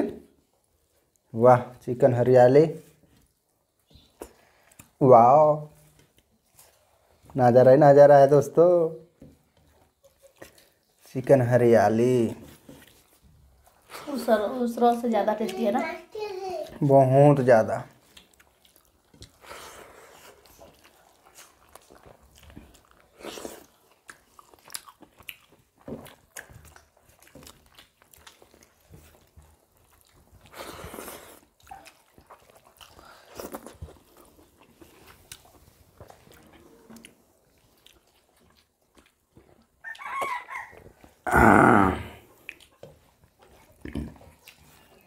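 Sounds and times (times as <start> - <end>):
chewing and mouth smacks: 3.2 - 5.0, 9.2 - 11.4, 12.5 - 16.8, 17.9 - 41.2, 42.2 - 45.0
fingers mixing food on plates: 9.1 - 41.2.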